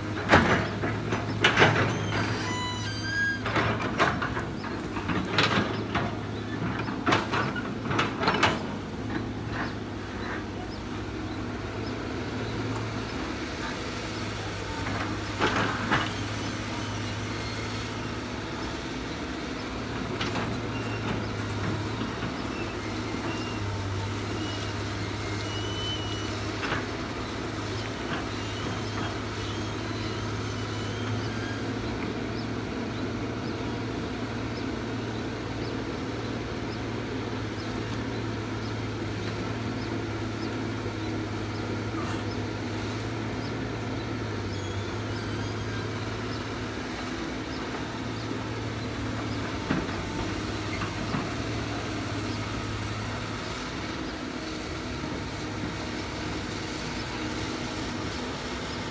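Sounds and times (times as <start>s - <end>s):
excavator diesel engine humming: 0.0s - 58.9s.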